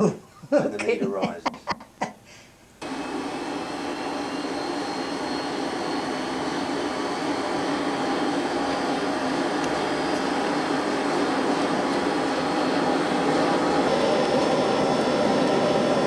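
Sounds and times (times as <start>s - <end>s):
forge fire roaring under blower: 2.8s - 16.0s.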